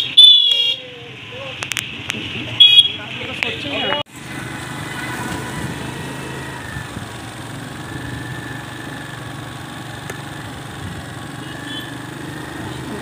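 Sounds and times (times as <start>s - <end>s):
small petrol engine running: 4.1s - 13.0s.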